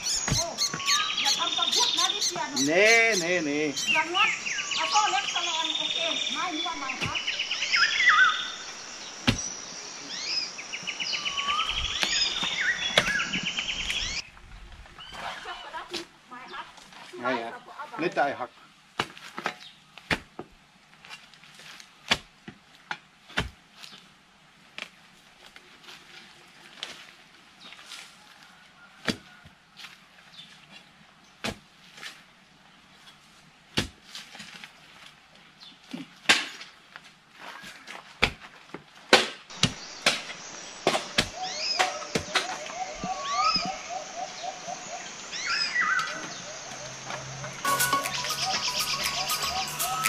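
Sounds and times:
high insect hum: 0.0 - 14.2, 39.5 - 50.0
birds calling: 0.0 - 18.7, 39.5 - 50.0
leaves rustling: 0.0 - 50.0
crowbar striking wooden stumps: 38.2 - 42.7.

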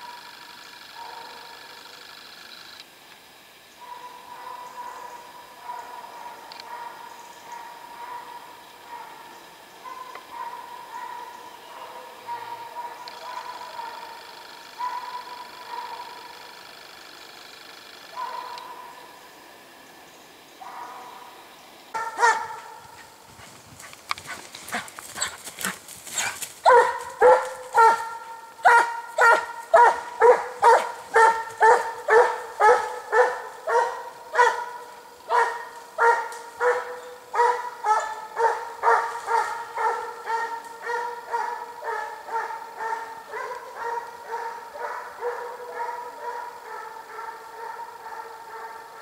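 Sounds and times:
hound baying: 0.9 - 1.8, 3.8 - 16.6, 18.1 - 19.1, 22.0 - 49.0.

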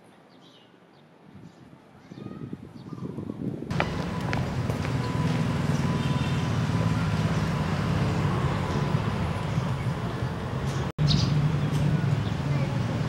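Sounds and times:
vehicle engine idling: 3.7 - 13.0.

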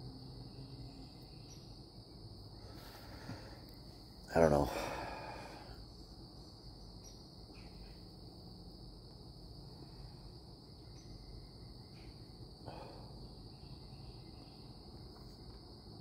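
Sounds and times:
crickets chirring: 0.0 - 16.0.

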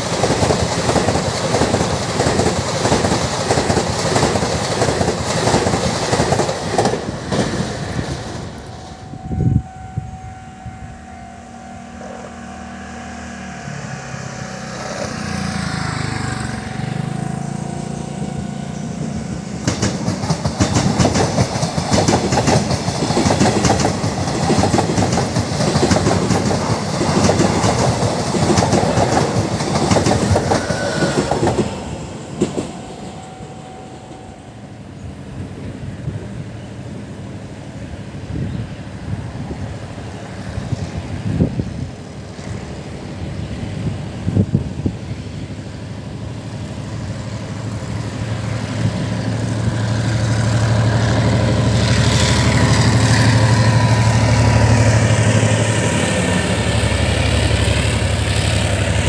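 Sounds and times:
train wheels clattering on rails: 0.0 - 9.0, 19.0 - 33.5
train motor hum: 0.0 - 59.0.

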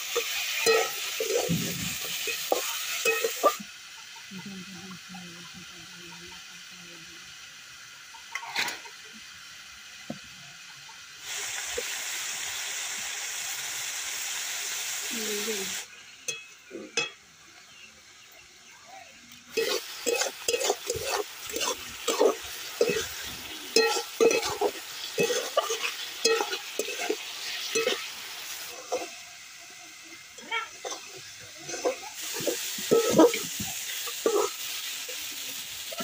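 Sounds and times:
metal spatula scraping a pan: 0.0 - 3.6, 8.3 - 8.9, 19.5 - 29.2, 30.4 - 34.9
frying sizzle: 0.0 - 36.0.

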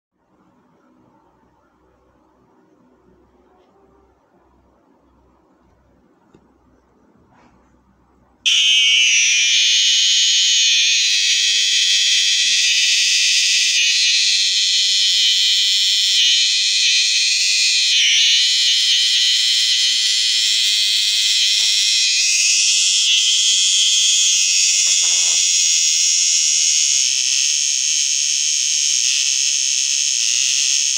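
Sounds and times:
cicada buzzing shrilly: 8.5 - 30.9.

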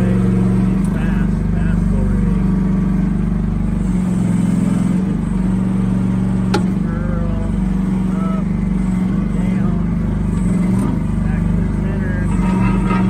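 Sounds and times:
excavator engine running: 0.0 - 13.0
sharp click: 6.5 - 6.8.

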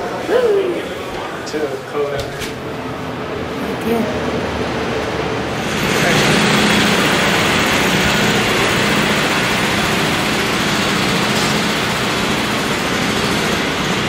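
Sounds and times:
street traffic roar: 2.4 - 14.0.

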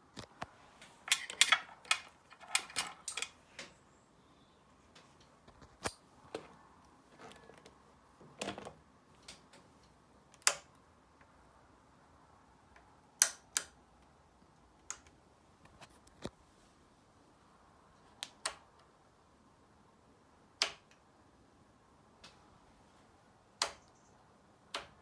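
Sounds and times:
motorcycle switches clicking: 13.2 - 13.8.

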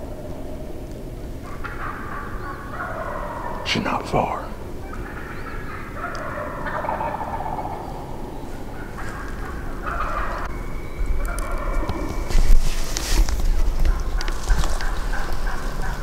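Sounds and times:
turkey gobbling: 1.4 - 4.0, 4.6 - 10.6, 11.2 - 12.2, 13.7 - 16.0.

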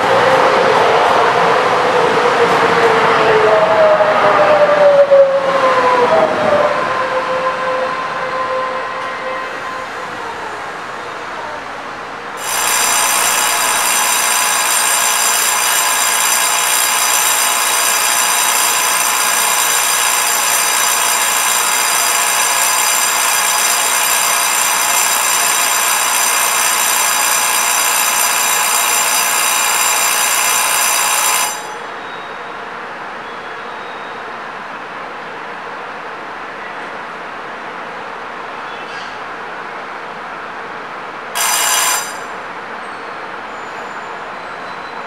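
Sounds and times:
electric bell ringing: 12.4 - 31.9, 41.4 - 42.4.

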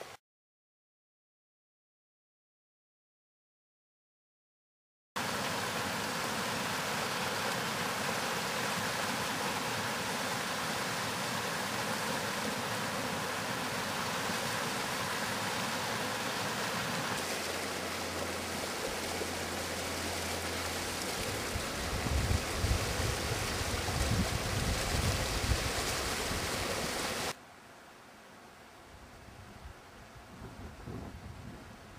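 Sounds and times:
water rushing over weir: 5.2 - 27.4
wind rumble on microphone: 21.2 - 27.0, 29.2 - 31.9.

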